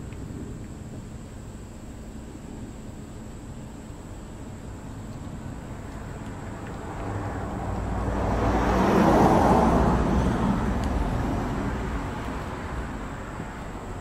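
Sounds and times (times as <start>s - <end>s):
vehicle driving past: 5.6s - 14.0s.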